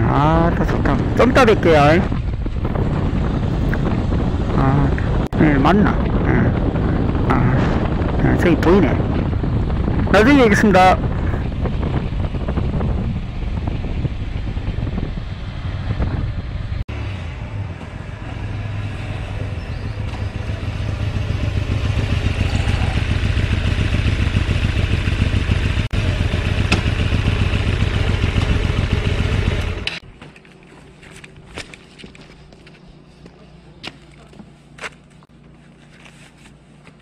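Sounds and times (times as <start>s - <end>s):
motorcycle engine: 0.0s - 5.3s, 5.9s - 30.1s.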